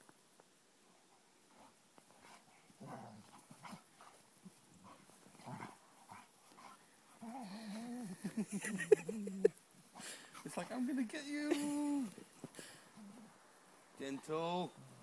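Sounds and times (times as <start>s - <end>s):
dogs growling and grunting: 2.8s - 3.9s, 4.8s - 8.4s.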